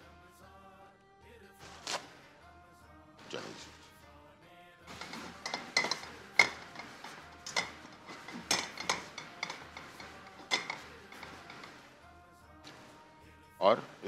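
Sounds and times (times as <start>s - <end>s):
metal cookware clattering: 4.9s - 11.9s.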